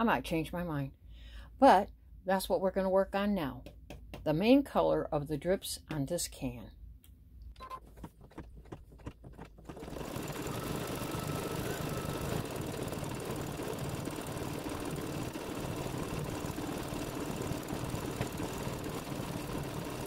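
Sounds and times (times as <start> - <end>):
embroidery machine stitching: 9.0 - 20.0.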